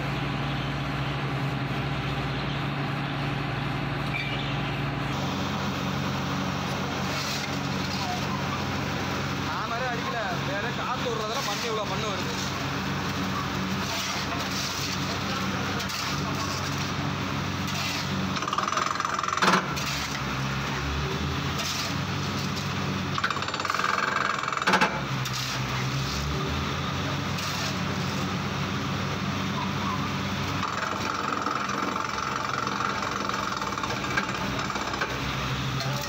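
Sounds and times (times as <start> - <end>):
drilling rig running: 0.0 - 36.0.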